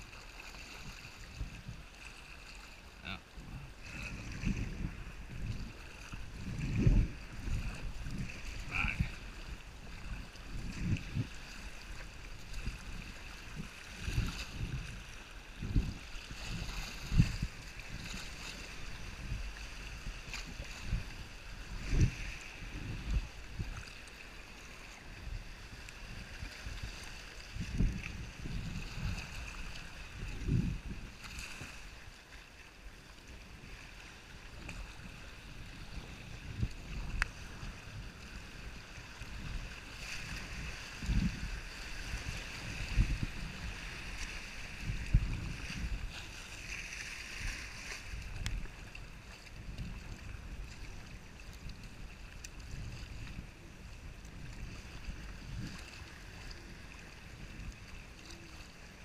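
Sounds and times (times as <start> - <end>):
wind on microphone: 0.0 - 59.0.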